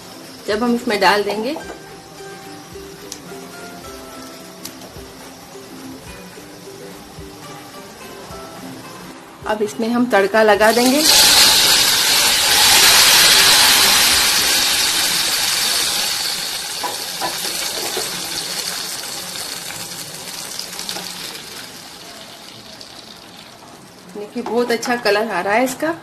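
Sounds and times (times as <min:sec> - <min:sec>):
hot oil sizzling in curry: 0:00.0 - 0:09.2, 0:10.6 - 0:25.4.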